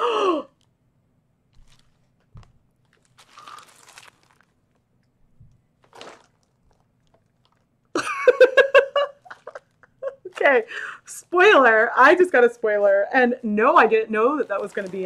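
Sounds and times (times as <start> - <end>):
paper bag crinkling: 1.5 - 4.9, 5.8 - 7.7, 14.2 - 15.0
woman laughing excitedly: 8.0 - 10.8.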